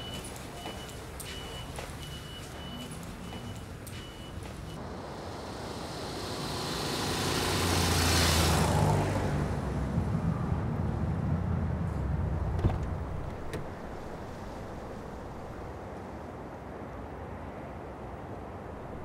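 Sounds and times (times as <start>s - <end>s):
car engine rumble: 4.8s - 15.7s
vehicle passing whoosh: 4.9s - 15.7s.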